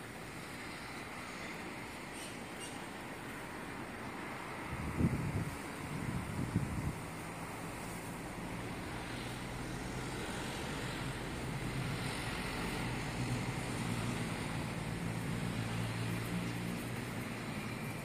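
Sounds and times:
distant city traffic rumble: 0.0s - 18.0s.

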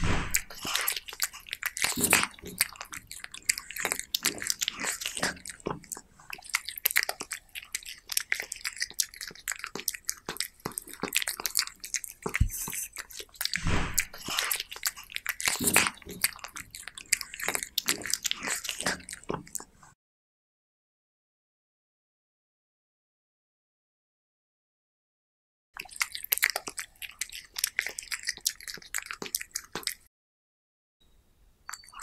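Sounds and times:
cat chewing raw meat: 0.0s - 19.8s, 25.8s - 30.1s.

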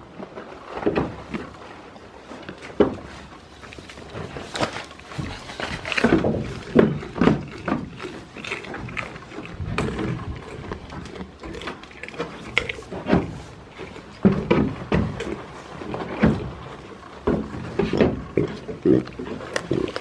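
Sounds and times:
knocks on wooden boards: 14.2s - 15.4s, 17.2s - 18.6s.

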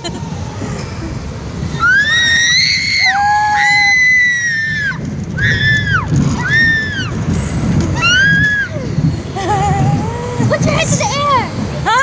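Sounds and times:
low rumble: 0.0s - 12.0s
riders screaming: 1.7s - 7.2s, 7.9s - 8.9s.

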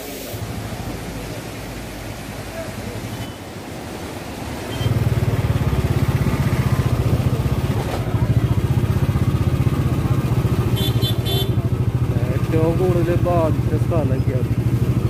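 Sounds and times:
motorcycle engine running: 4.8s - 15.0s.

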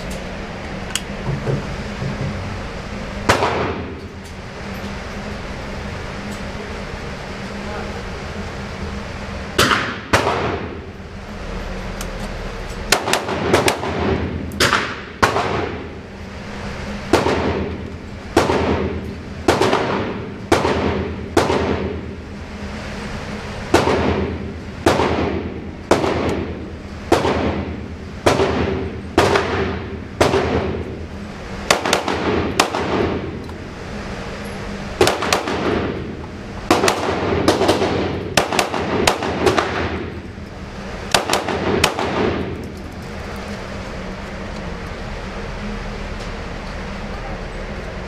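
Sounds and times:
ventilation hum: 0.0s - 48.0s
handgun shots with echo: 9.6s - 10.7s, 12.9s - 15.8s.

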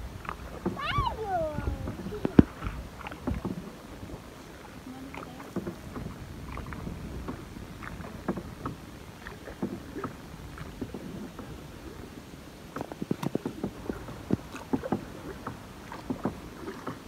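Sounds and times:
water wash: 0.0s - 17.0s
wind: 0.0s - 17.0s
light knocks and splashes: 0.2s - 11.6s, 12.7s - 17.0s.

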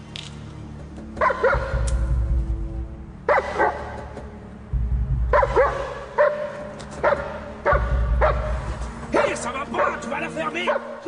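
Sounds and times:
dog barking aggressively: 1.2s - 1.8s, 3.3s - 4.0s, 5.3s - 8.5s, 10.7s - 11.0s.

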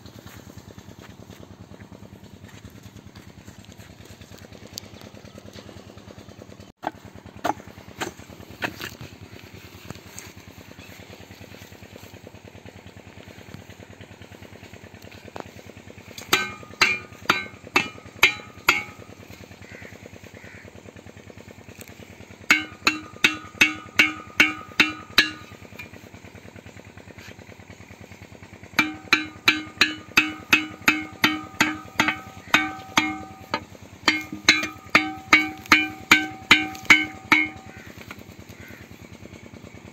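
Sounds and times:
small diesel engine running: 0.0s - 39.9s
sharp ringing pitched strikes: 16.1s - 19.4s, 22.5s - 26.1s, 28.8s - 38.3s.

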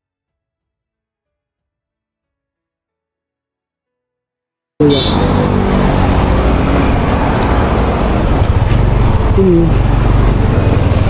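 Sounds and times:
motorcycle engine running: 4.9s - 11.0s.

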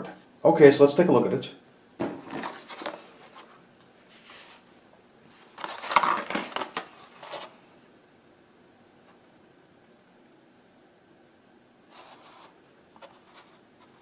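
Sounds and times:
plastic packaging crinkling: 5.4s - 7.5s.

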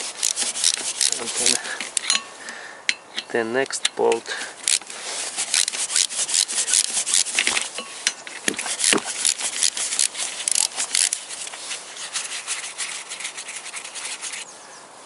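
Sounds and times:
ratchet wrench clicking: 4.6s - 7.3s, 8.8s - 11.2s.

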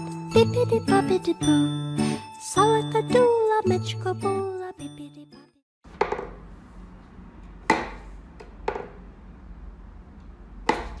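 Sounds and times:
wooden toy knocks: 6.0s - 6.4s, 8.6s - 9.0s.

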